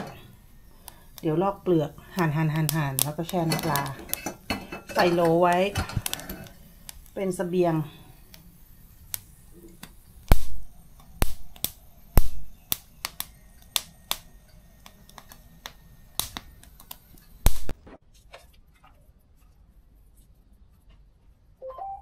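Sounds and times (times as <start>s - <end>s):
kitchen utensils clicking: 2.6s - 6.6s.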